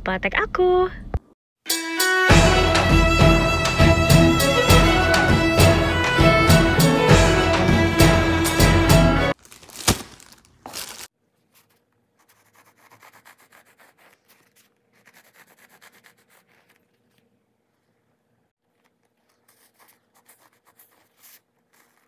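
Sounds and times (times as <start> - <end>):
intro music: 1.7 - 9.4
knife sawing bread: 12.2 - 16.9.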